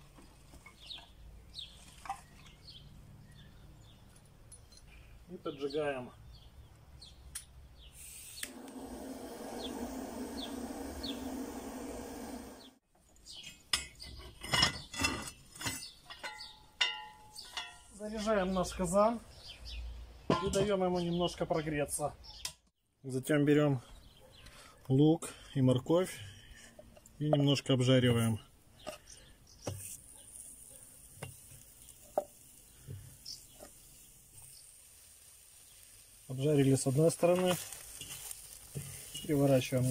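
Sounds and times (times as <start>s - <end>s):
gas torch hissing: 7.9s - 12.8s
gas torch click: 8.2s - 8.8s
cast-iron stove rings clanking: 13.7s - 17.9s
faint sizzle: 29.6s - 39.9s.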